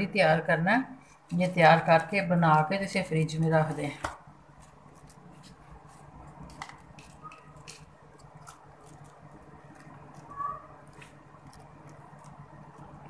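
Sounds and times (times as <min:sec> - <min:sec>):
low steady hum: 0:00.0 - 0:13.0
crushed almonds crackling: 0:06.4 - 0:13.0.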